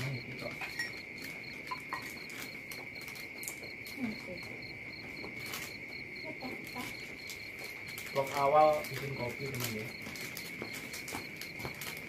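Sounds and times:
cricket steady high trill: 0:00.0 - 0:12.0
pulsing higher cricket chirp: 0:00.0 - 0:12.0.

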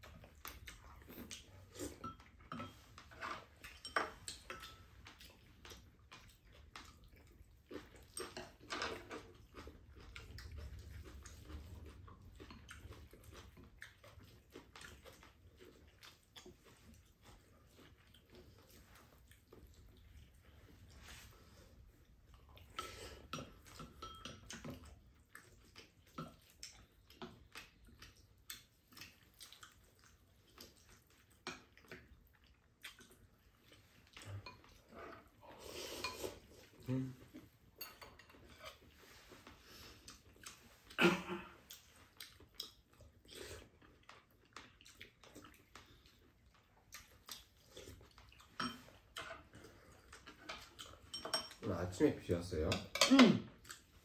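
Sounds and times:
utensils clinking on ceramic bowls: 0:01.8 - 0:04.9, 0:22.7 - 0:24.8, 0:37.8 - 0:38.8, 0:48.5 - 0:49.4, 0:50.5 - 0:51.8, 0:52.6 - 0:53.4.

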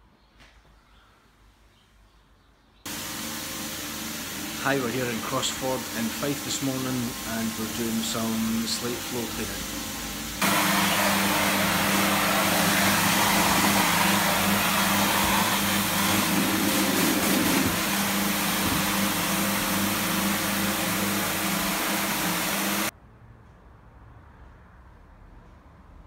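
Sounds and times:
floor scrubbing machine motor hum: 0:02.9 - 0:22.9
loud hiss: 0:02.9 - 0:22.9.

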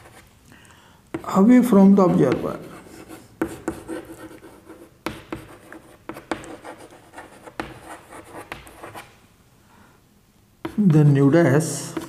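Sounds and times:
chalk tapping on board: 0:01.1 - 0:01.4, 0:02.1 - 0:02.7, 0:03.4 - 0:09.1, 0:10.6 - 0:11.0
chalk scratching on blackboard: 0:01.2 - 0:09.1.

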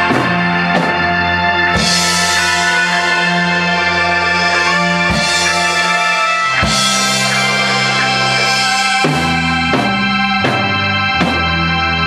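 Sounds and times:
bass guitar: 0:00.0 - 0:12.0
electric guitar sustained notes: 0:00.0 - 0:12.0
cymbal crashes: 0:01.7 - 0:10.6
heavy drum hits: 0:01.7 - 0:11.6.

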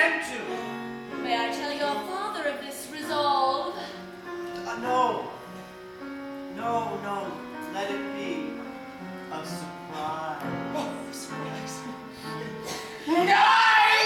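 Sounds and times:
woman singing: 0:01.2 - 0:04.0.

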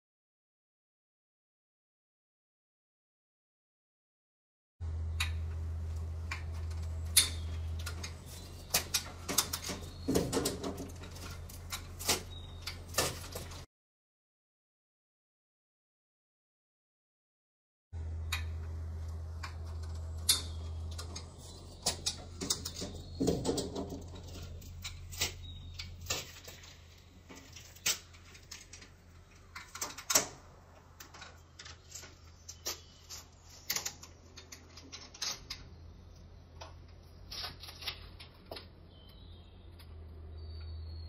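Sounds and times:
low steady hum: 0:04.8 - 0:13.6, 0:18.0 - 0:41.0
bicycle metallic clicks and rattles: 0:05.2 - 0:13.6, 0:18.2 - 0:35.7.

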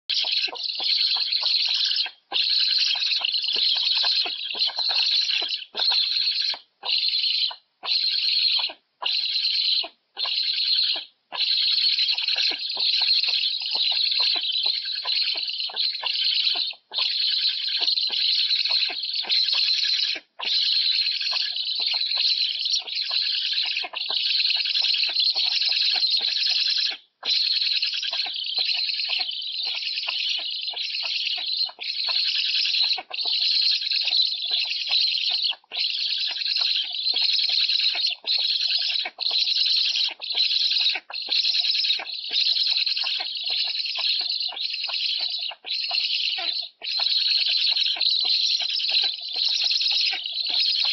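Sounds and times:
young storks squealing: 0:00.1 - 0:50.9.

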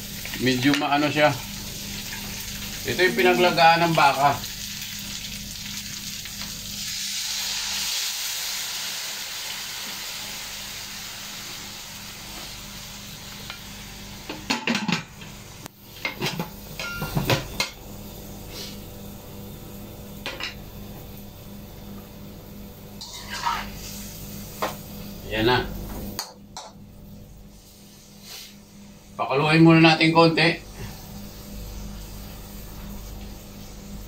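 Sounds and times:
broth sizzling in a hot wok: 0:00.0 - 0:34.0
metal pots and utensils clinking: 0:16.0 - 0:17.8.

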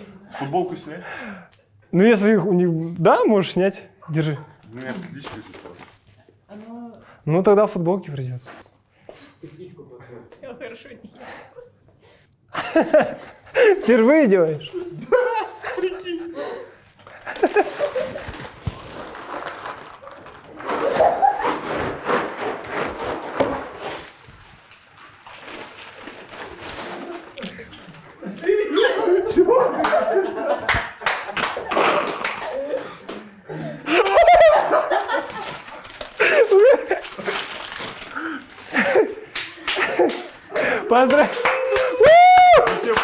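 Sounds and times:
people whooping and shouting: 0:41.0 - 0:43.0.

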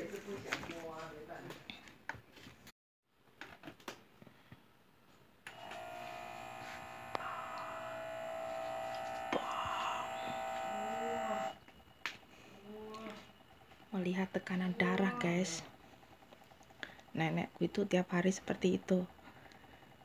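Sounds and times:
air pump whirring: 0:05.5 - 0:13.9.

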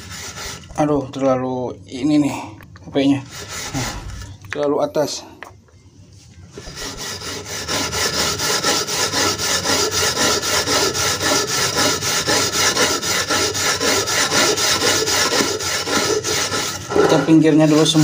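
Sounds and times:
steel wool scrubbing metal pan: 0:06.7 - 0:18.0.

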